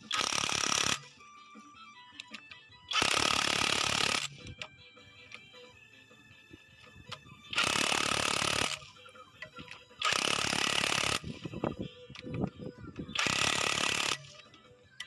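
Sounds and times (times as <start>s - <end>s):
power tool bursts: 0.1s - 1.0s, 2.9s - 4.3s, 7.6s - 8.8s, 10.0s - 11.3s, 13.2s - 14.3s.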